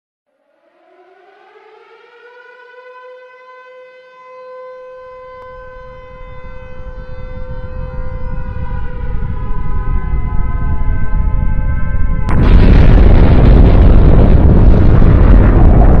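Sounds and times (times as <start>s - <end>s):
air-raid siren wailing: 0.3s - 16.0s
deep rumble: 5.5s - 16.0s.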